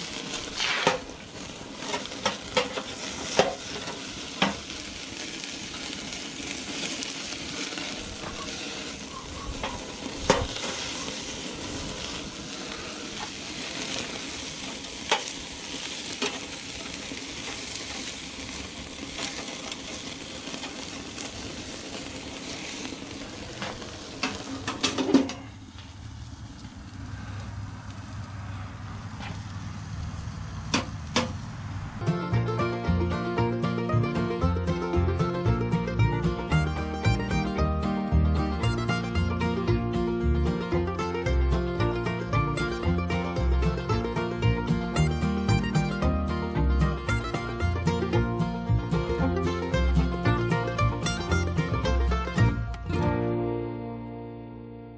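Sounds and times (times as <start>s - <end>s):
meat sizzling on a grill: 0.0s - 52.6s
grease popping: 0.0s - 53.2s
metal grill lid clattering shut: 23.6s - 25.5s.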